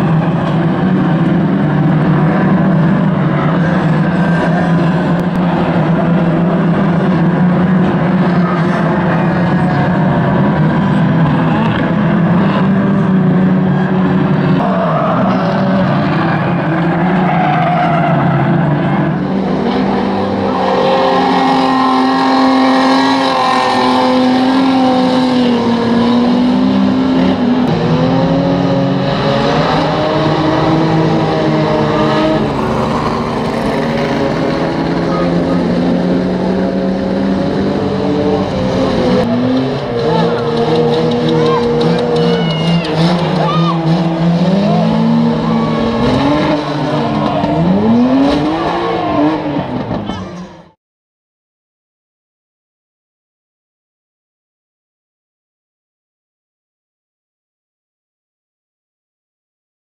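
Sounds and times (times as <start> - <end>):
racing car engines revving: 0.0 - 50.8.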